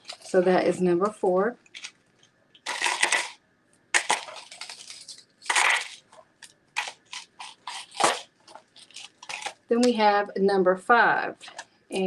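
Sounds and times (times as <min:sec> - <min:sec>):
packaging rustling: 0:00.0 - 0:00.6, 0:01.6 - 0:09.7.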